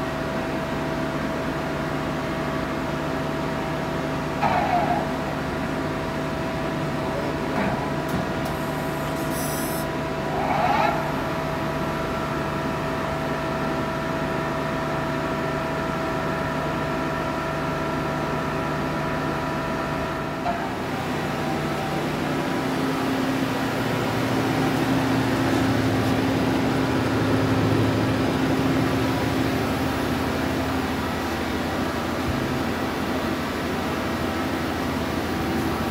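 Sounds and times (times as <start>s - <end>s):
low machine hum: 11.0s - 35.9s.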